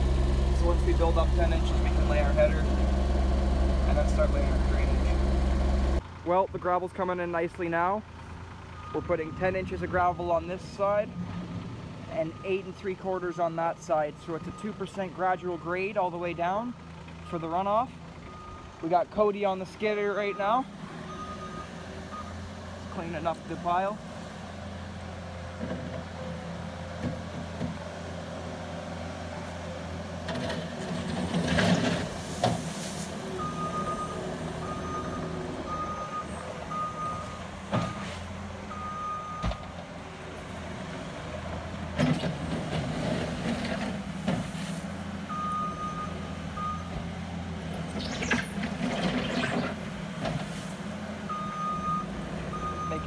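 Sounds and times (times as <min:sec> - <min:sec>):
diesel engine running: 0:00.0 - 0:53.0
reverse alarm beeping: 0:33.4 - 0:38.1, 0:38.7 - 0:39.6, 0:45.3 - 0:46.9, 0:51.3 - 0:53.0.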